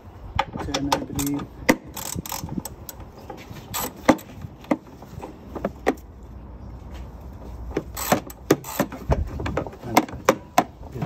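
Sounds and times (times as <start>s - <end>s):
parts scraping and rustling: 0.5s - 11.0s
ratchet and metal tools clicking: 0.8s - 3.1s, 7.9s - 9.0s.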